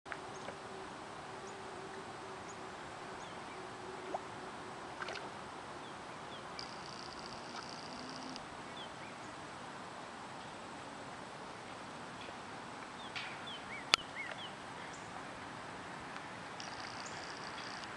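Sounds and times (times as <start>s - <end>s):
faint low hum: 0.1s - 17.9s
steady soft hiss: 0.1s - 17.9s
bird chirps: 6.3s - 9.3s, 16.6s - 17.9s.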